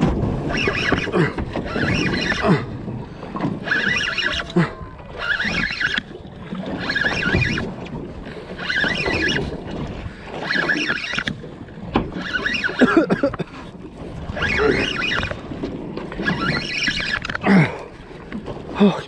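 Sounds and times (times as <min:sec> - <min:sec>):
wind: 0:00.0 - 0:19.0
fishing reel cranking: 0:00.4 - 0:02.6, 0:03.4 - 0:09.6, 0:10.3 - 0:11.4, 0:12.1 - 0:12.9, 0:14.3 - 0:15.4, 0:16.1 - 0:17.4.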